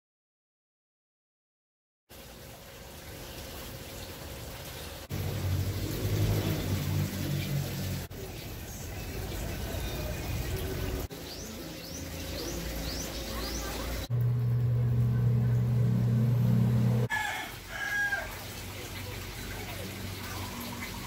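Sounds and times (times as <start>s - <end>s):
low hum: 12.0s - 17.1s.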